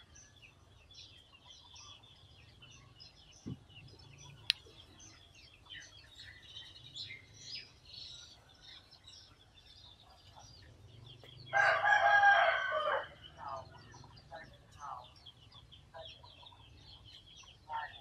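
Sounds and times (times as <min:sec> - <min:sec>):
small birds chirping: 0:00.0 - 0:18.0
rooster crowing: 0:11.5 - 0:13.3.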